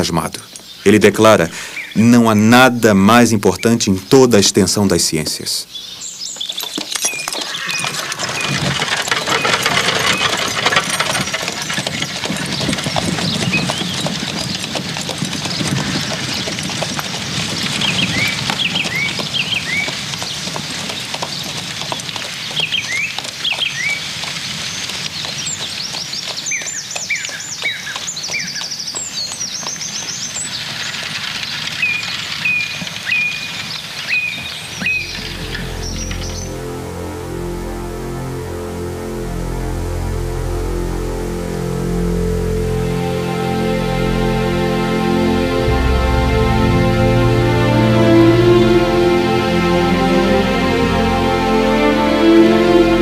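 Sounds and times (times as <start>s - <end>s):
birds chirping: 0.0s - 37.4s
horse hooves clip-clopping: 6.0s - 37.7s.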